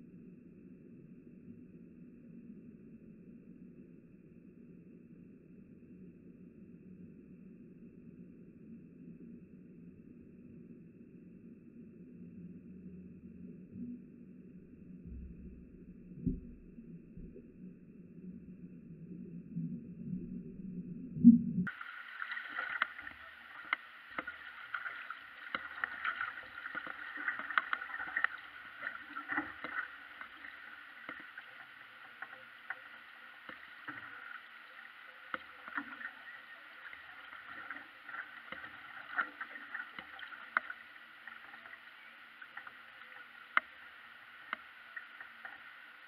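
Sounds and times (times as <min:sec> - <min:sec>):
small water splashes and drips: 0:21.6 - 0:46.0
paddle blades dipping in water: 0:21.7 - 0:41.8
water washing along canoe hull: 0:21.7 - 0:43.7.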